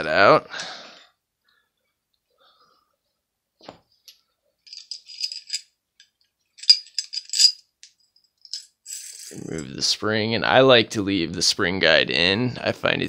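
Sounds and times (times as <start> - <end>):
metal gun parts clinking: 4.1 - 9.6.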